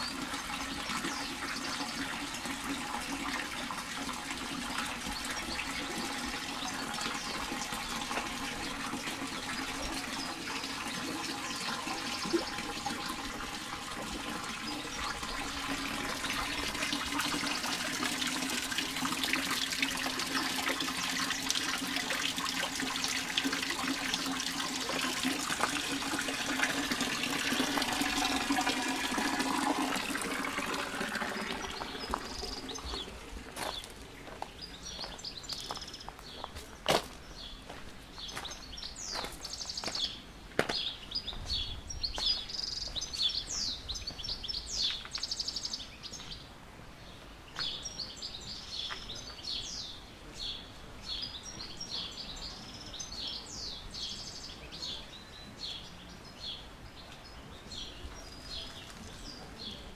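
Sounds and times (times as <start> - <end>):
fountain water splashing into basin: 0.0 - 35.8
footsteps crunching on gravel: 33.4 - 42.6.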